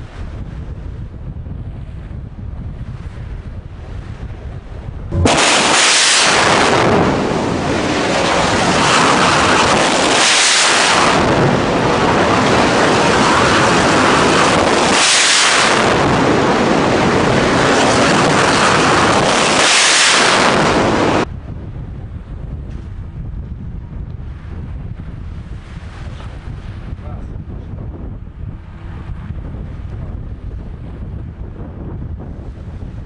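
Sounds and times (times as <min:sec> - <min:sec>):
rocket booster roaring: 0:05.1 - 0:21.3.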